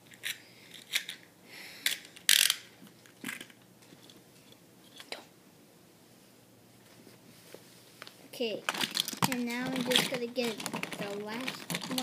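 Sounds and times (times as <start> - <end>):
plastic clicks: 8.7 - 12.0.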